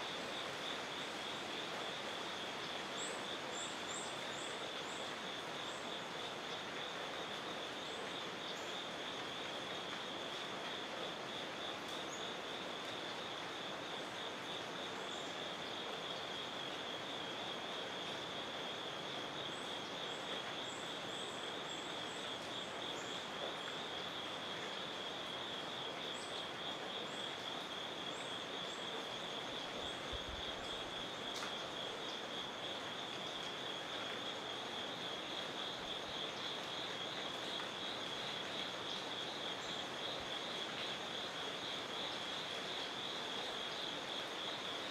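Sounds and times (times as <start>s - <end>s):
background hiss: 0.0s - 44.9s
insect chorus trilling: 0.0s - 44.9s.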